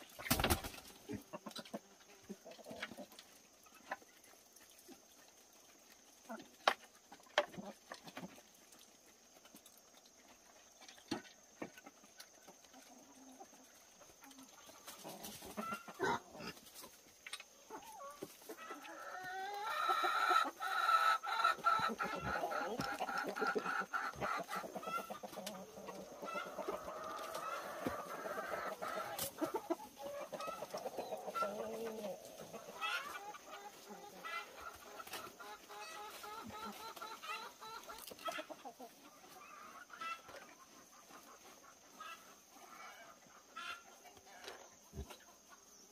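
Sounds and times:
chickens clucking: 0:00.0 - 0:45.9.

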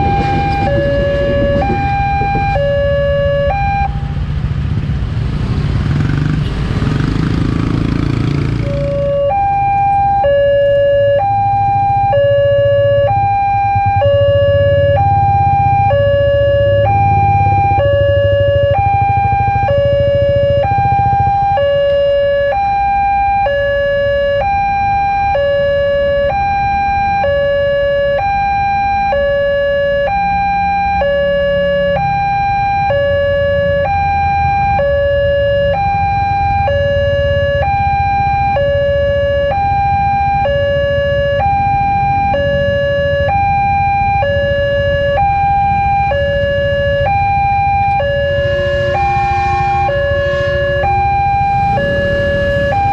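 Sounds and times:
loud rushing noise: 0:00.0 - 0:02.6, 0:47.6 - 0:52.9
motorcycle engines idling: 0:12.6 - 0:21.8, 0:35.7 - 0:52.9.

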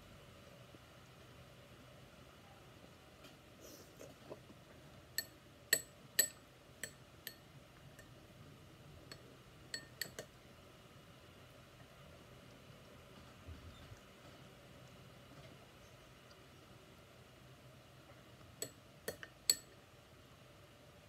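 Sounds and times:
spoon clinking against glass bowl: 0:05.2 - 0:07.4, 0:09.1 - 0:10.3, 0:18.6 - 0:19.7.

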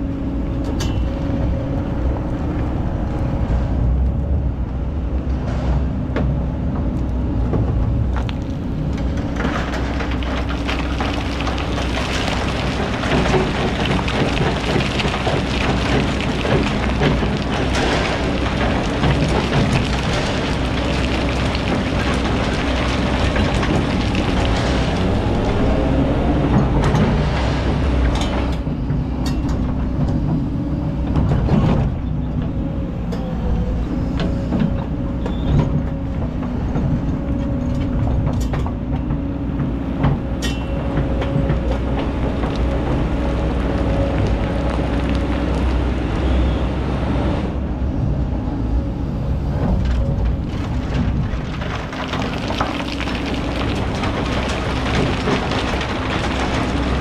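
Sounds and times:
excavator engine droning: 0:00.0 - 0:57.0
stones knocking against bucket: 0:09.4 - 0:25.5, 0:50.3 - 0:57.0
sand and gravel pouring: 0:09.4 - 0:26.3, 0:50.3 - 0:57.0.

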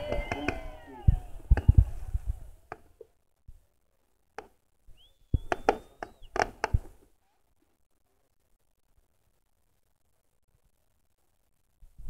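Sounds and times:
high steady whistle: 0:00.0 - 0:02.5, 0:04.9 - 0:06.4
fireworks bangs: 0:00.0 - 0:03.0, 0:04.9 - 0:07.0.

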